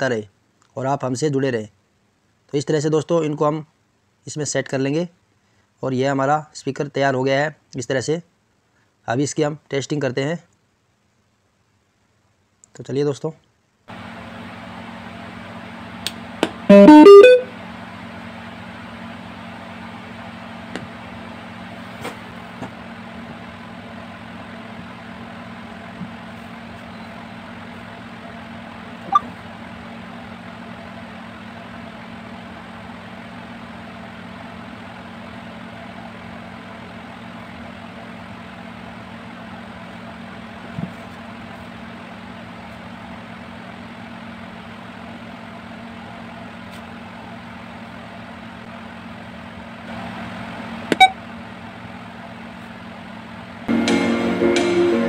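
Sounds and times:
speaker power-on chime: 16.7 - 17.5.

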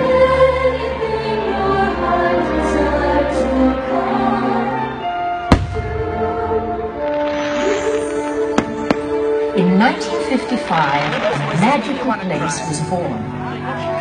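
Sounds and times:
choir singing: 0.0 - 12.4
orchestral music: 0.0 - 14.0
firework bang: 5.5 - 6.4, 7.0 - 9.4.

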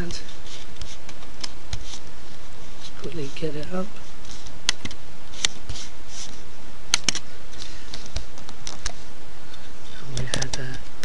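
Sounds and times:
steady background noise: 0.0 - 11.0
keyboard and mouse clicks: 6.9 - 9.0, 10.1 - 10.8.

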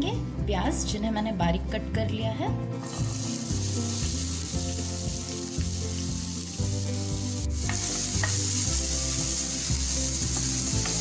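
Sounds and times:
background music: 0.0 - 11.0
onions sizzling in oil: 2.8 - 11.0.

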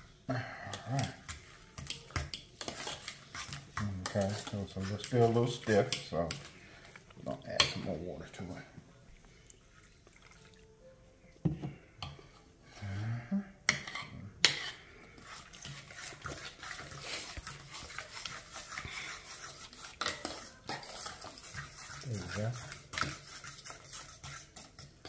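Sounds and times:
utensil scraping saucepan: 0.7 - 8.7, 13.7 - 25.0.

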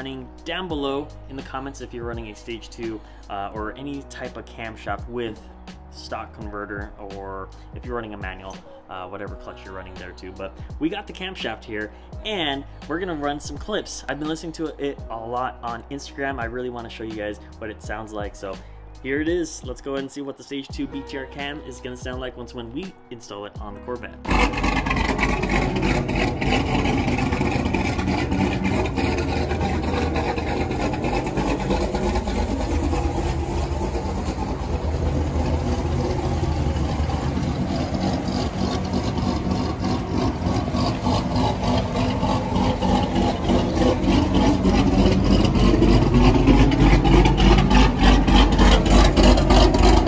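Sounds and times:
car exhaust idling choppily: 24.3 - 50.0.

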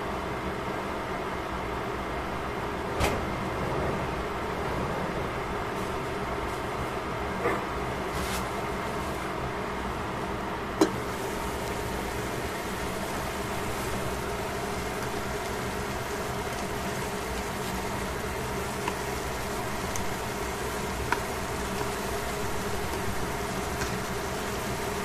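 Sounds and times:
steady humming background: 0.0 - 25.0
vegetables sizzling: 10.6 - 25.0.

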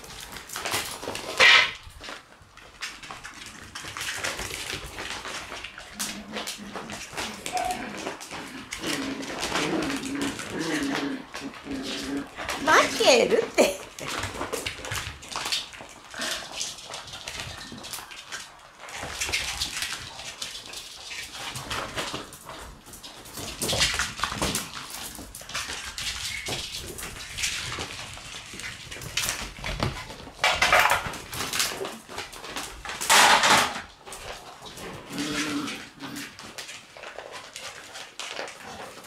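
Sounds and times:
bag rustling and crinkling: 0.0 - 39.0
puppy whining: 6.0 - 14.5.

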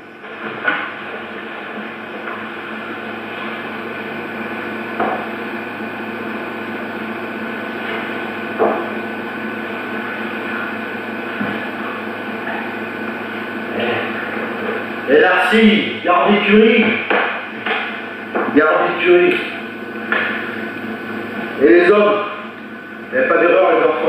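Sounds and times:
steady hum: 0.0 - 24.0.

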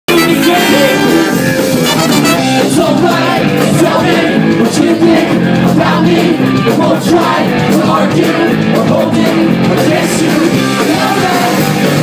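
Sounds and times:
trumpet: 0.1 - 2.8
live ska band playing: 0.1 - 12.0
person singing: 0.1 - 12.0.

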